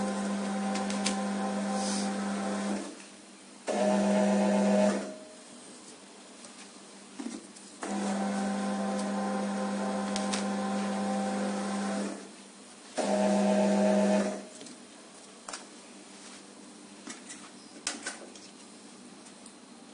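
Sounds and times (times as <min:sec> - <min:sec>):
conveyor belt motor humming: 0:00.0 - 0:03.0, 0:03.7 - 0:05.4, 0:07.8 - 0:12.3, 0:13.0 - 0:14.5.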